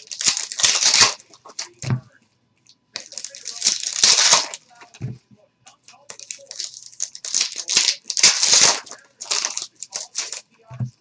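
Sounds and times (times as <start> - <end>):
wrappers torn and crinkled: 0.0 - 1.8, 3.0 - 4.6, 5.9 - 10.4.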